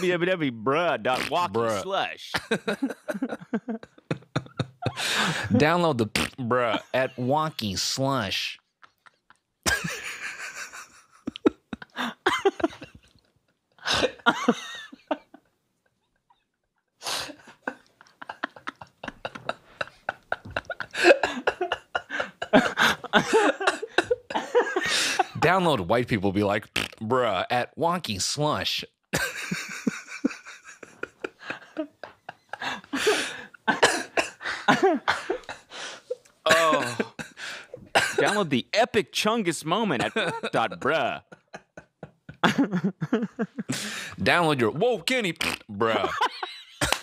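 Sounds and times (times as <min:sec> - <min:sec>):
men laughing hard: 0:02.4 - 0:05.7, 0:06.5 - 0:07.6, 0:08.8 - 0:13.2, 0:13.8 - 0:15.5, 0:16.1 - 0:25.5, 0:29.2 - 0:38.5, 0:39.9 - 0:44.2, 0:45.8 - 0:47.0
gasps and coughing breaths: 0:04.8 - 0:05.6, 0:13.8 - 0:14.3, 0:20.7 - 0:25.4, 0:32.5 - 0:38.5, 0:43.6 - 0:44.2.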